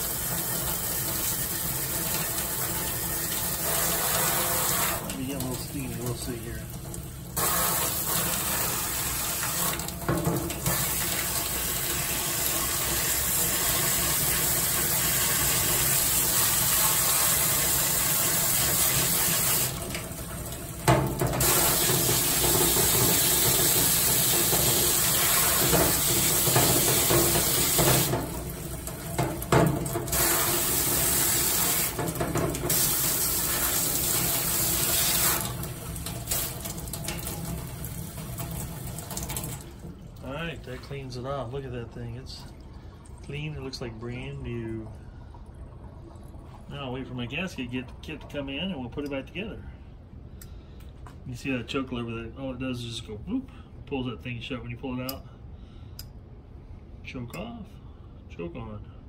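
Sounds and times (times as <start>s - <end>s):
tap water splashing into sink: 0.0s - 40.9s.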